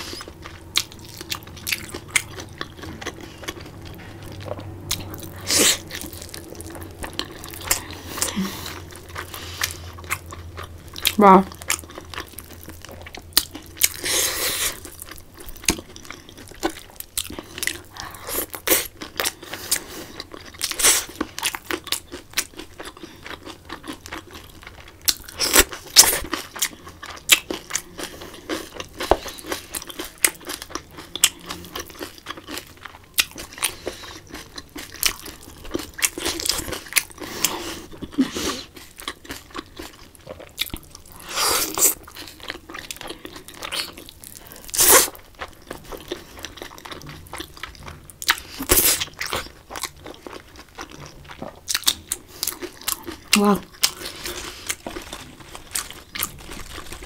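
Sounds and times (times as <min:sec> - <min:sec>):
chewing and crunching: 0:00.0 - 0:57.0.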